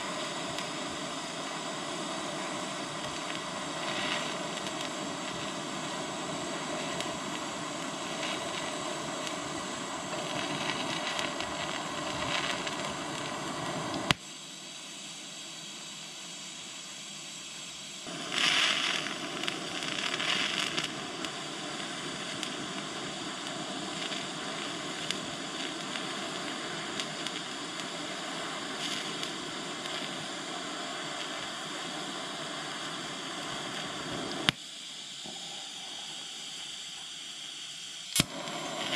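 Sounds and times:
welding arc hissing and buzzing: 0.0 - 38.9
sharp click: 38.1 - 38.4.

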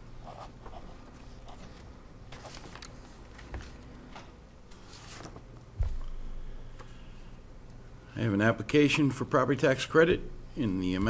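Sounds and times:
papers rustling: 0.6 - 6.2.

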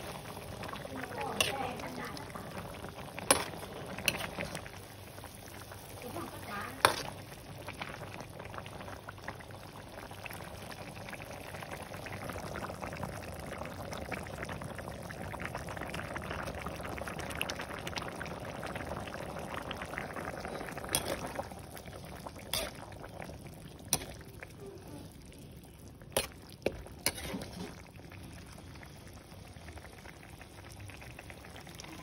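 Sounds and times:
broth bubbling in a pan: 0.0 - 32.0
spatula stirring liquid: 3.0 - 4.7, 6.8 - 7.3, 20.5 - 24.7, 26.1 - 28.0.

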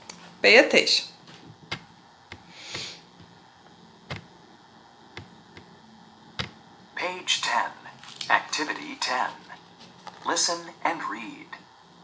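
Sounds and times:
phone clicks and taps: 6.4 - 6.6.

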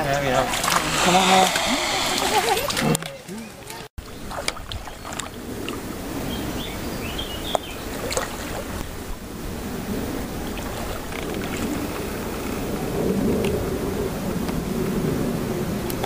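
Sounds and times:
dog splashing in water: 0.3 - 1.5
wind rumble on microphone: 4.0 - 16.0.

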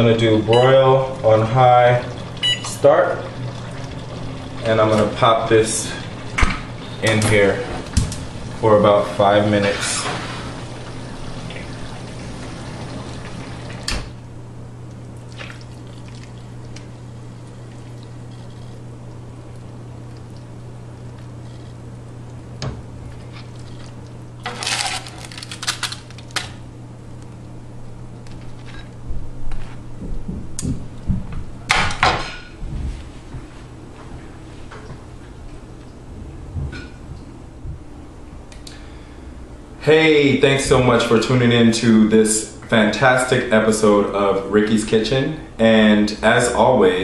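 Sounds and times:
low steady hum: 0.0 - 47.0
wet food squishing: 14.9 - 18.8
low hum: 32.4 - 42.8.

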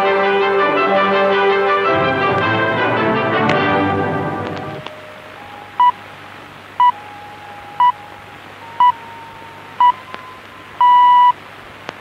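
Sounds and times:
shortwave radio hiss: 4.4 - 12.0
time signal pips: 4.8 - 6.0, 6.8 - 11.4.

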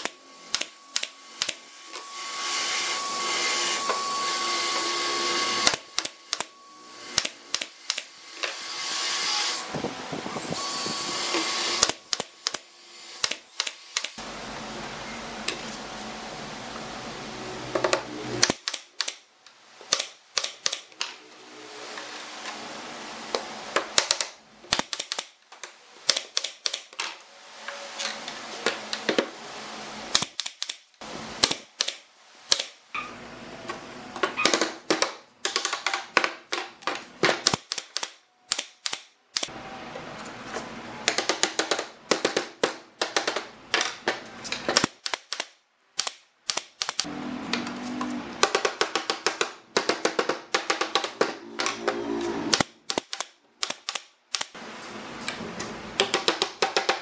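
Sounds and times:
brad nailer firing: 9.7 - 14.2, 18.4 - 19.2, 37.2 - 39.5, 52.5 - 54.6.

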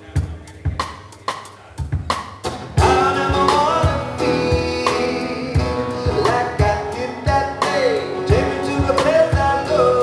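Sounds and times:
drum kit playing a beat: 0.0 - 10.0
acoustic guitar: 0.1 - 10.0
man singing: 2.8 - 10.0.

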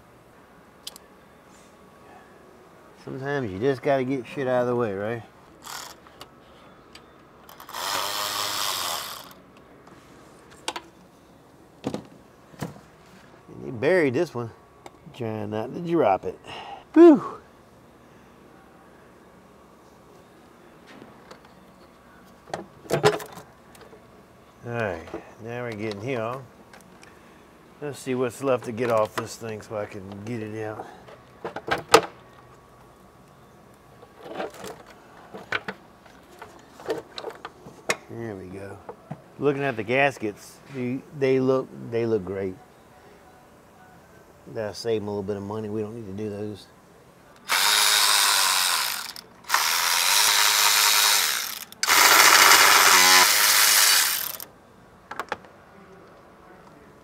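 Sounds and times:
electric ratchet whirring: 5.6 - 6.1, 7.5 - 9.4, 47.4 - 54.5
plastic parts and tools clattering: 22.5 - 23.4, 34.0 - 37.6.

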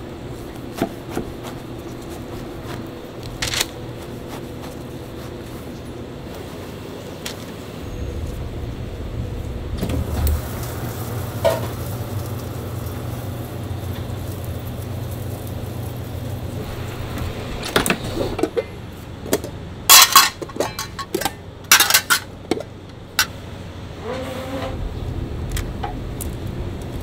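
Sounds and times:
steady low hum: 0.0 - 27.0
metal tongs clinking on pans: 19.9 - 22.3.

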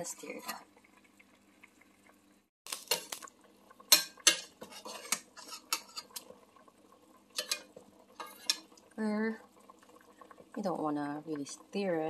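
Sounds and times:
metal ladle clanking in pot: 3.9 - 6.2, 7.4 - 8.7.

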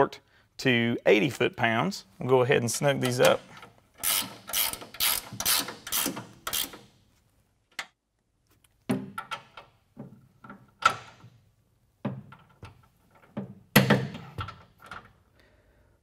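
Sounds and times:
ratchet wrench clicking: 4.0 - 6.9.

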